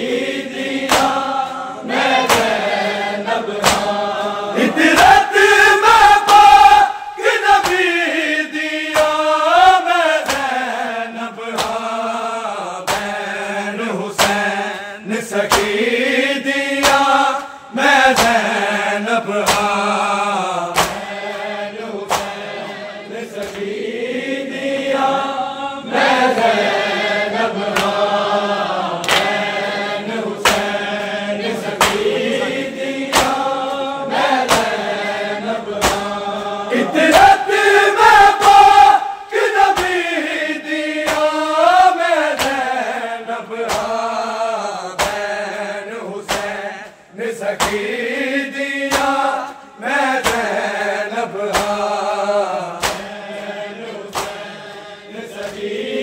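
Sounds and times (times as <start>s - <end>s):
men singing in chorus: 0.0s - 56.0s
hands striking chests: 20.8s - 21.1s, 35.8s - 36.1s.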